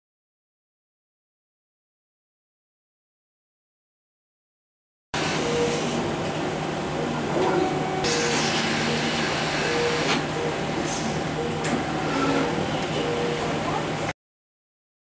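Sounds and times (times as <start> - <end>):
mechanical hum: 5.2 - 14.2.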